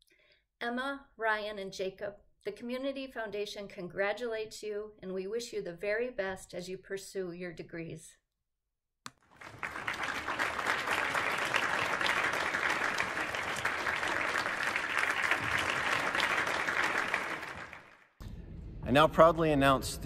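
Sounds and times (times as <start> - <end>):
crowd clapping: 9.2 - 18.2.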